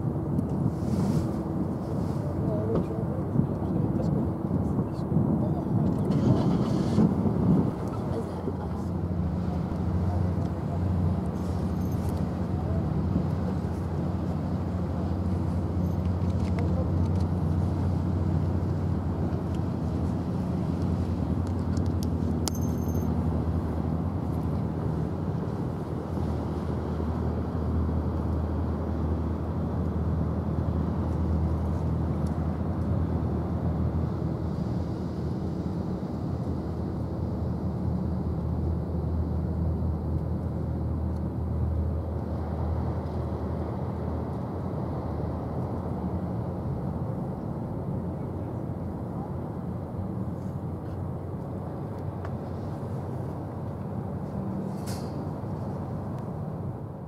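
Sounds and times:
low outdoor rumble: 0.0s - 57.0s
ship engines droning: 0.0s - 57.0s
brief hiss: 54.7s - 55.3s.

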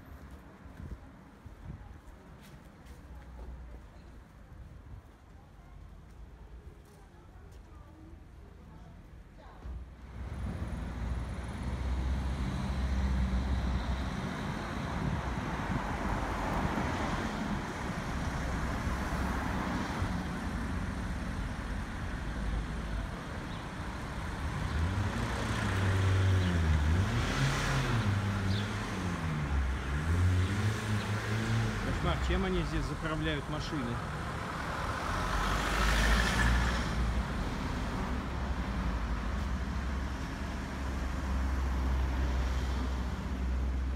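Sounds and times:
cars driving by: 10.0s - 43.9s
vehicle passing close by: 23.9s - 43.9s.

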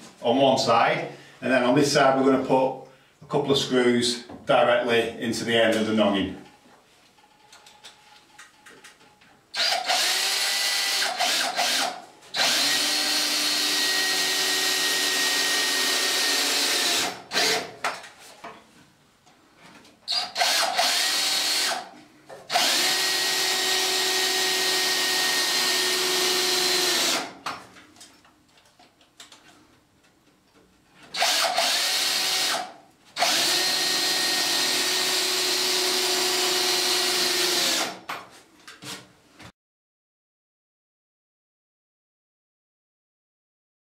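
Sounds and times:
cordless drill whirring: 9.6s - 17.7s, 20.1s - 21.9s, 22.5s - 27.3s, 31.2s - 38.0s.

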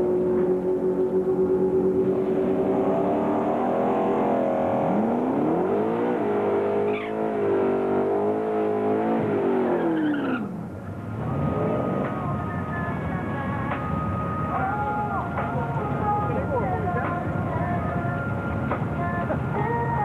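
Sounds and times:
car engine revving: 0.0s - 16.6s
tyres spinning and squealing: 6.8s - 7.3s, 9.5s - 10.6s.

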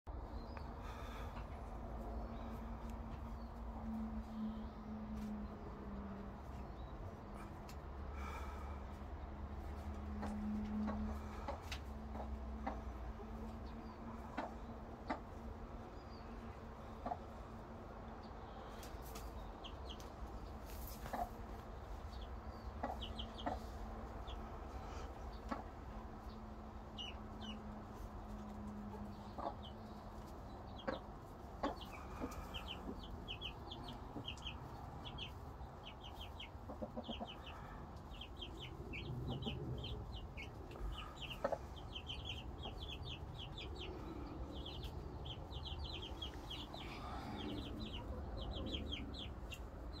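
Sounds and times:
chicks peeping: 0.1s - 50.0s
hen clucking: 9.9s - 15.5s, 20.8s - 50.0s.

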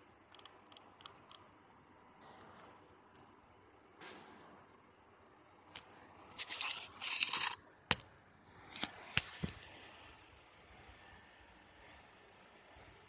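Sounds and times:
scraping rustling handling noise: 6.3s - 7.6s.

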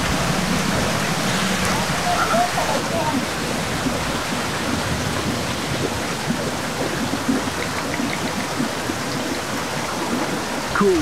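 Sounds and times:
heavy rain falling: 0.0s - 11.0s.

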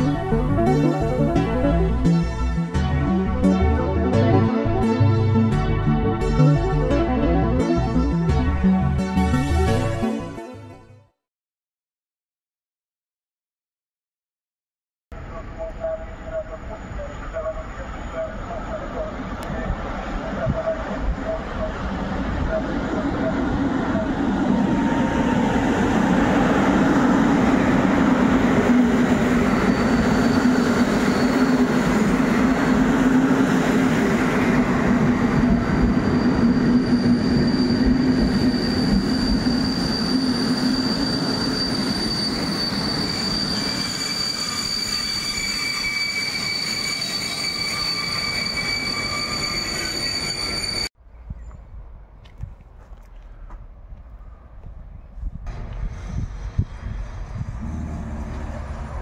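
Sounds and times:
high squeal from running gear: 29.3s - 32.2s, 35.4s - 50.9s
train wheels rumbling on rail: 55.3s - 59.0s.

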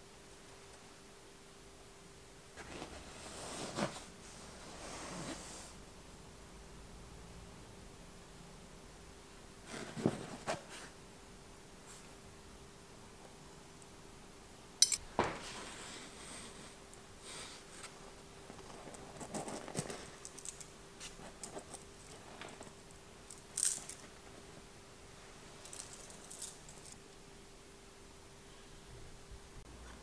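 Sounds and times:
light metallic clinks: 14.8s - 15.1s.

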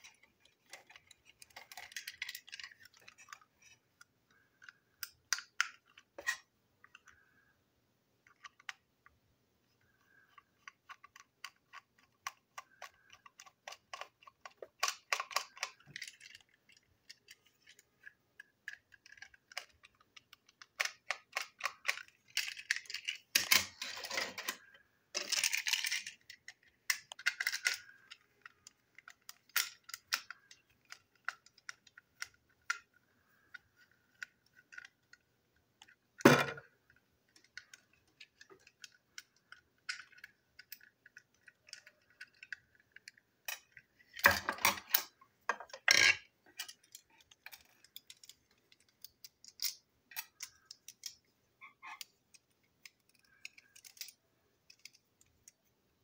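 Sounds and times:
clatter of parts: 10.1s - 35.1s, 52.8s - 55.6s.

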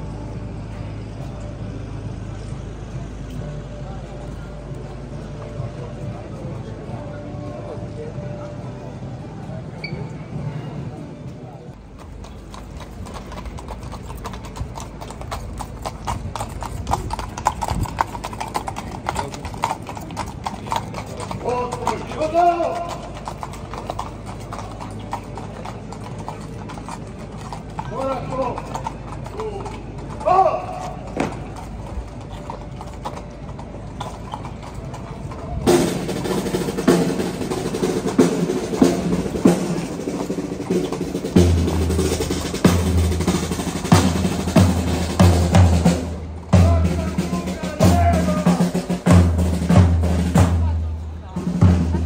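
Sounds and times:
horse hooves on stone paving: 0.0s - 52.0s
marching drums beating: 35.6s - 52.0s.

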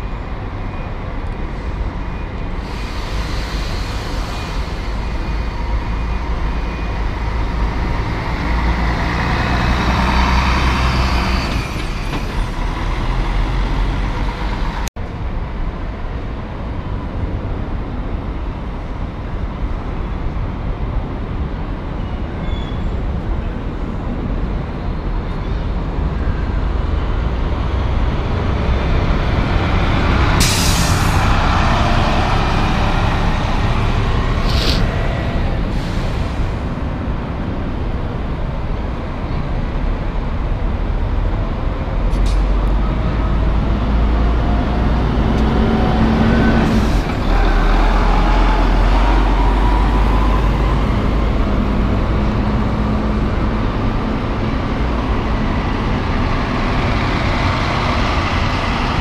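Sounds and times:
coach diesel engines passing: 0.0s - 15.3s, 23.5s - 59.0s
short sharp hiss: 34.4s - 35.0s.

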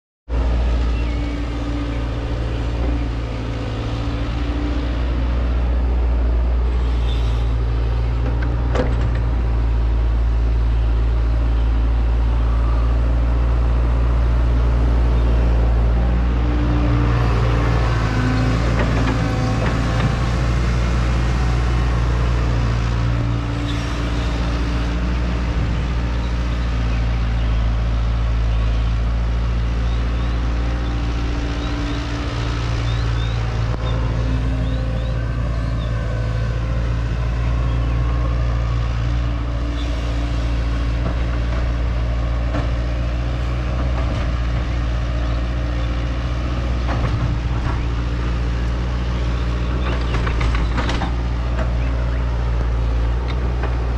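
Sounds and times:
diesel engine running: 0.3s - 53.9s.

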